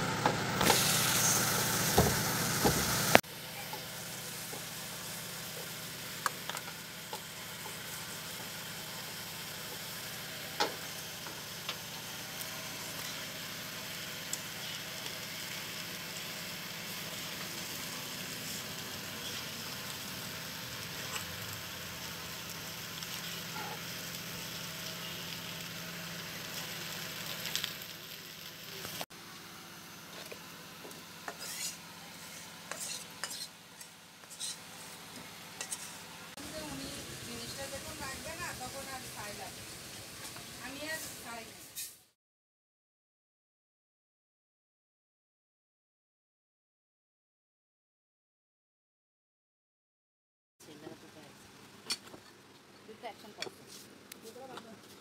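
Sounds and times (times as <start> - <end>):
fish frying in oil: 0.6 - 29.6, 30.3 - 42.1
metal spatula scraping pan: 31.3 - 36.1.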